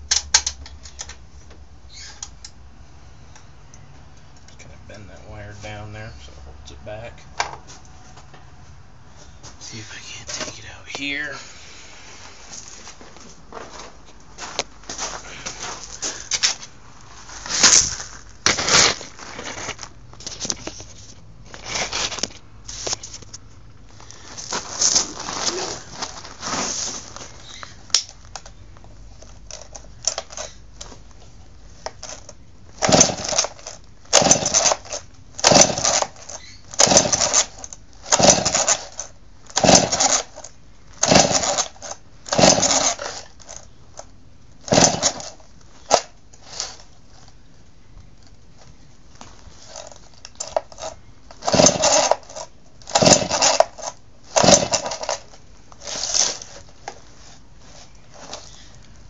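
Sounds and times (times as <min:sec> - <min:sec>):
chainsaw pull-start cranking: 0:29.5 - 0:30.6, 0:32.0 - 0:43.6, 0:44.6 - 0:46.8, 0:49.7 - 0:56.5.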